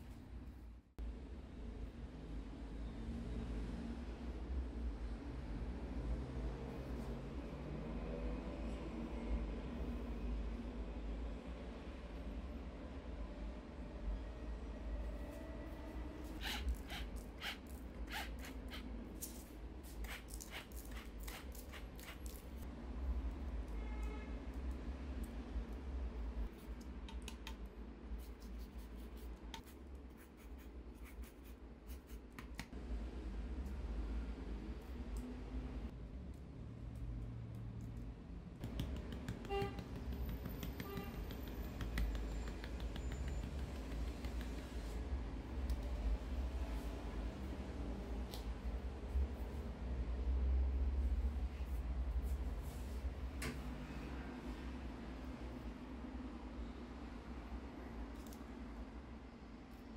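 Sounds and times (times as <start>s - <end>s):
soft swishes or scrapes: 51.2s - 54.7s.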